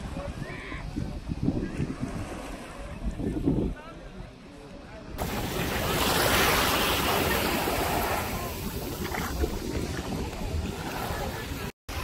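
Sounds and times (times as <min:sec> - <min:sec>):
wind rumbling on microphone: 0:00.0 - 0:12.0
surf washing onto sandy beach: 0:05.2 - 0:12.0.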